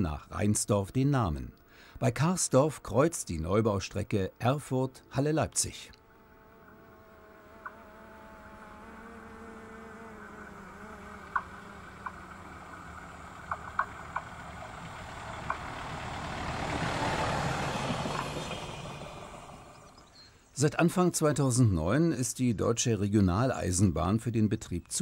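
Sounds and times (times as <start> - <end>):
railcar passing: 12.0 - 20.1.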